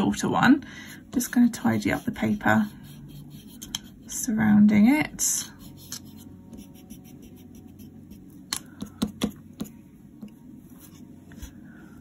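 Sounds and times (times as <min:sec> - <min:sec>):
eraser rubbing on paper: 0:01.2 - 0:04.1.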